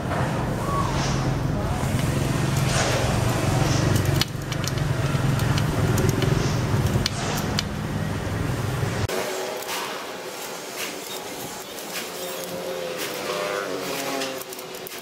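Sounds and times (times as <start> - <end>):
vehicle engine running: 1.3 - 9.1.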